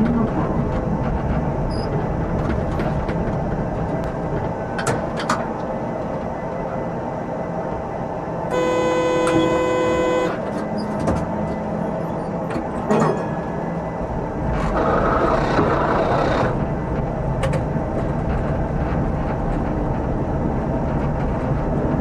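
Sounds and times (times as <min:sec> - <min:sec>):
tram rumbling on rails: 0:00.0 - 0:22.0
steady horn-like tone: 0:08.5 - 0:10.6.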